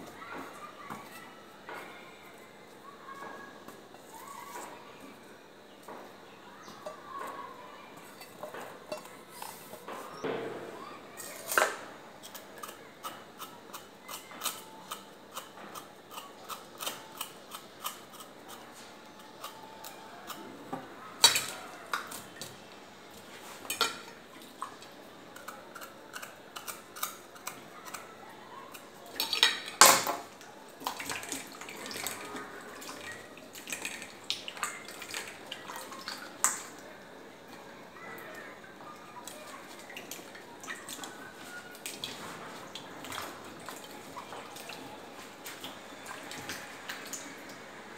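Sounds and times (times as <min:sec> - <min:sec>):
knife scraping ginger: 0:12.2 - 0:20.5, 0:25.3 - 0:28.9.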